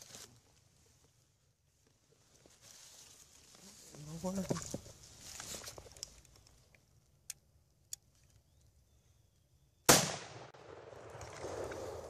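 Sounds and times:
rifle shot: 0:09.9 - 0:12.0.

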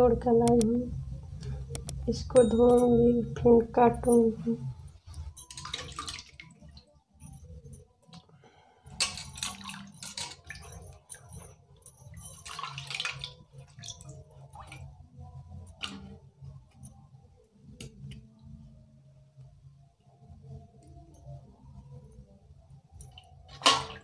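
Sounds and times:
sharp clicks: 0:01.7 - 0:02.0
water splashing in steel pot: 0:05.4 - 0:06.8, 0:09.0 - 0:10.6, 0:12.3 - 0:14.9, 0:23.5 - 0:24.0.

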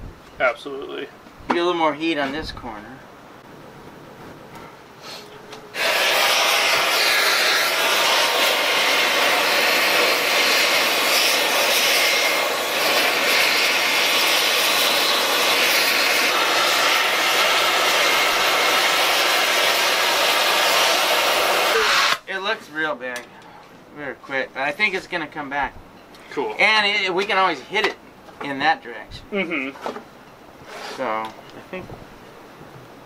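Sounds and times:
torch flame hissing: 0:05.0 - 0:22.3.

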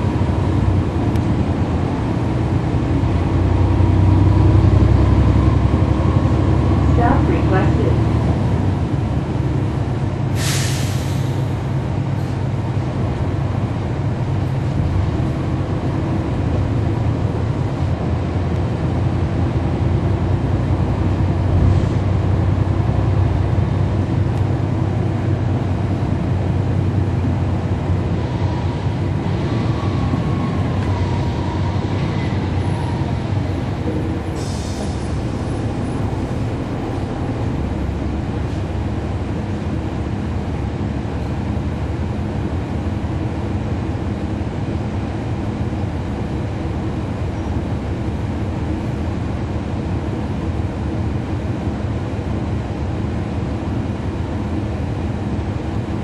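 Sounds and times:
bus diesel engine running: 0:00.0 - 0:56.0
air hiss burst: 0:10.4 - 0:11.4.

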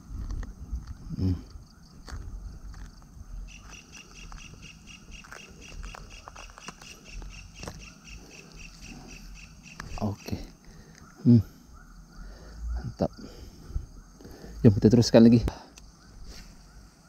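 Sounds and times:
clicks and rustling of hands: 0:05.2 - 0:07.8.

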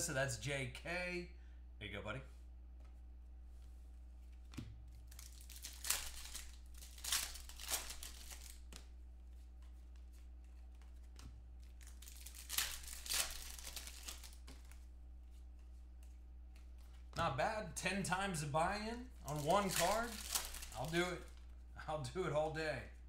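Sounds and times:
low electrical hum: 0:00.0 - 0:23.0
plastic wrapper crinkling: 0:04.9 - 0:08.9, 0:11.0 - 0:14.9, 0:19.1 - 0:21.6.

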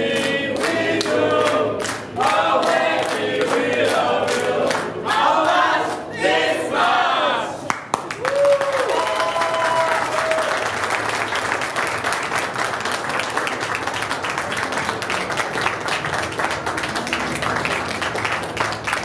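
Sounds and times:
crowd applause: 0:07.7 - 0:19.0.

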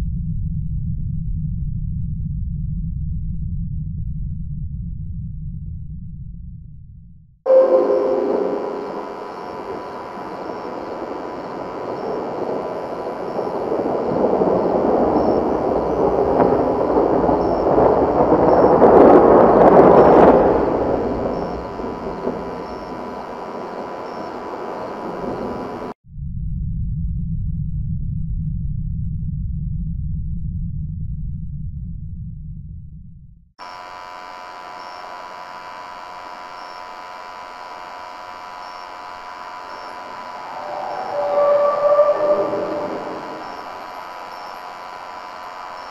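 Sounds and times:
faint short high blips: 0:07.5 - 0:14.0
dense rushing noise: 0:07.5 - 0:26.0, 0:39.6 - 0:45.9
electronic hum and hiss: 0:07.5 - 0:26.0, 0:33.6 - 0:45.9
faint steady tone: 0:07.5 - 0:26.0, 0:33.6 - 0:45.9.

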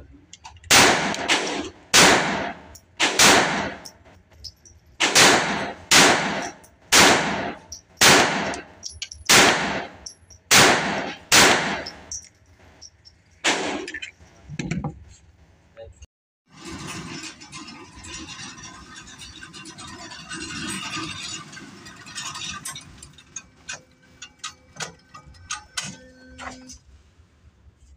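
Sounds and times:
pistol shots echoing indoors: 0:00.7 - 0:03.8, 0:05.0 - 0:08.6, 0:09.3 - 0:12.1.

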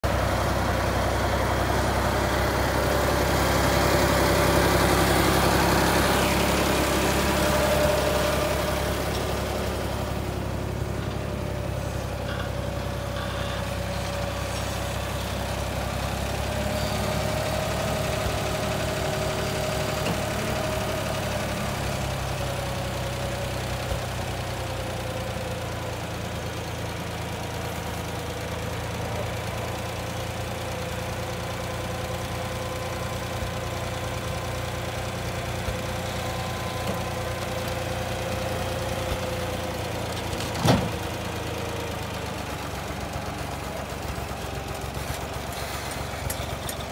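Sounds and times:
tractor engine running: 0:00.0 - 0:46.9.

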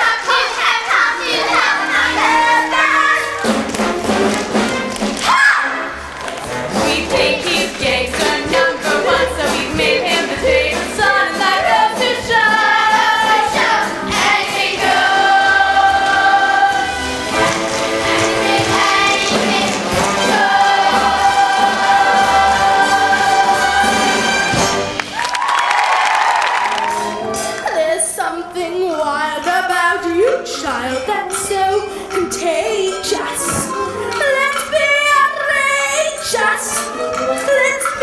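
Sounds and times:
young voices singing: 0:00.0 - 0:03.6, 0:06.5 - 0:24.3
instrumental accompaniment with beat: 0:06.0 - 0:25.6.

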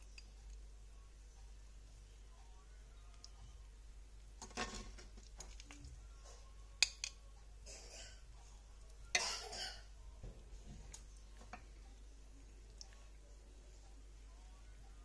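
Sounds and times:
soft wet squish: 0:05.2 - 0:06.0.

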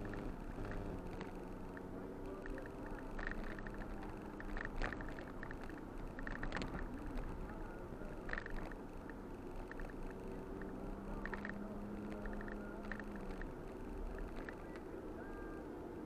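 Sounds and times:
car engine and tyre rumble: 0:00.0 - 0:16.0
clicking rattles: 0:02.4 - 0:07.3, 0:08.2 - 0:14.7.

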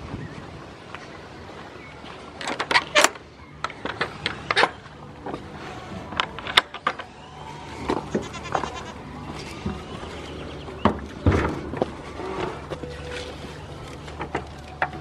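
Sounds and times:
goats bleating: 0:08.0 - 0:09.1.

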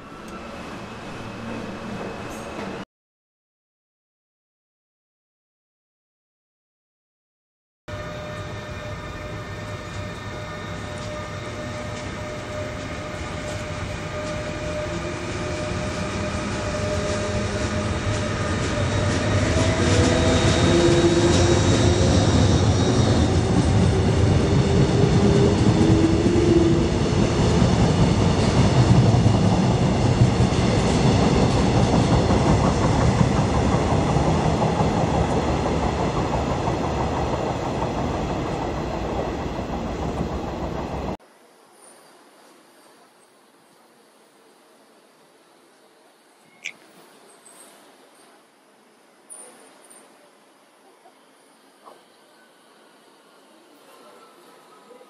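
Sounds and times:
electric train rumbling past: 0:00.0 - 0:02.8, 0:07.9 - 0:41.2
train whining tones: 0:07.9 - 0:41.2.

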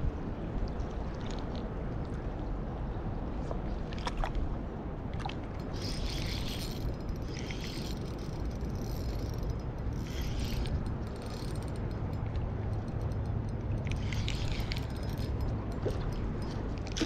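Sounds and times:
wind rumbling on microphone: 0:00.0 - 0:17.0
fishing reel whirring: 0:05.6 - 0:17.0.

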